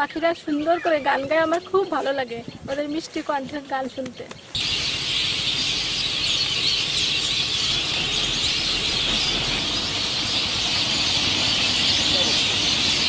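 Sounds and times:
flock of birds chirping: 0:00.0 - 0:13.0.

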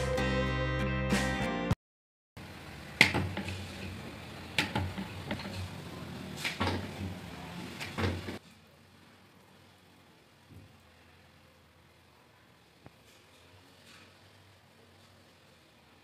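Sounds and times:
low background noise: 0:02.4 - 0:16.0.

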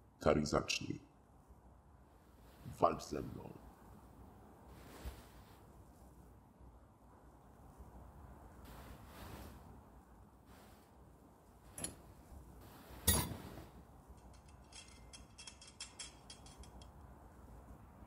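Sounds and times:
light clinking: 0:11.7 - 0:12.3, 0:12.9 - 0:17.5.

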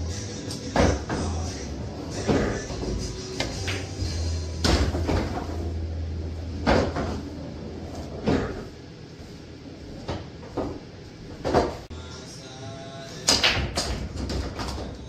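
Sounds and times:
pool balls knocking: 0:00.0 - 0:08.8, 0:09.8 - 0:11.9, 0:13.3 - 0:15.0
pool ball rolling rumble: 0:00.0 - 0:11.9
pool ball clunk: 0:04.6 - 0:05.7, 0:06.5 - 0:07.3.

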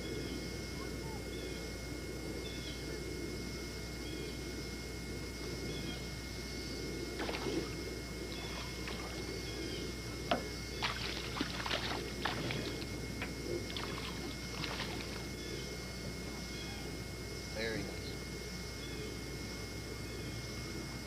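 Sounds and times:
camcorder hiss and hum: 0:00.0 - 0:21.0
fish splashing in water: 0:07.2 - 0:07.7, 0:10.8 - 0:12.8, 0:13.7 - 0:15.2.

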